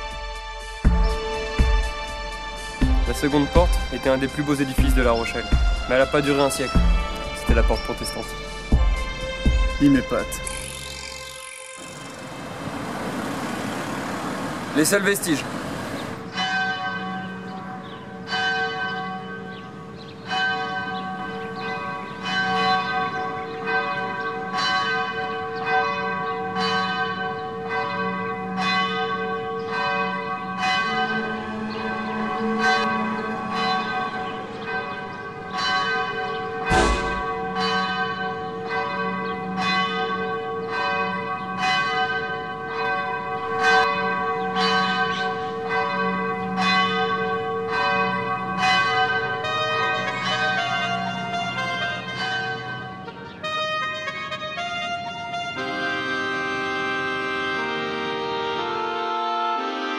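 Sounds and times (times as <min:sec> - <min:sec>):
church bells ringing: 0:00.0 - 0:12.6, 0:14.2 - 0:59.9
deep thump: 0:36.7 - 0:37.5.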